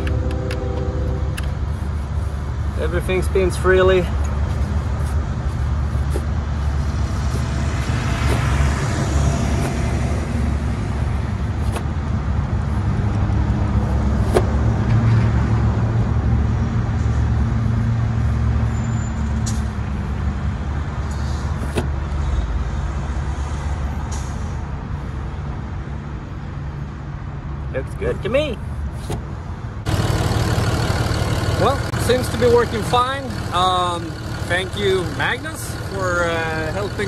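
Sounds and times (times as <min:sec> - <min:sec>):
diesel engine idling: 0:29.8 - 0:37.0.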